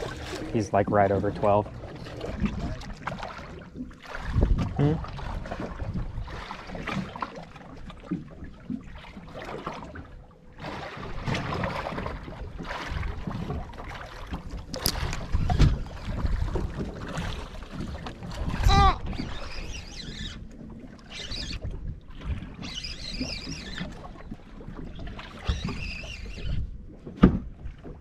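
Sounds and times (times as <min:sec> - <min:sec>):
water slapping against boat hull: 0:00.0 - 0:28.0
wind on microphone: 0:04.2 - 0:06.5, 0:14.8 - 0:17.4, 0:18.3 - 0:20.5.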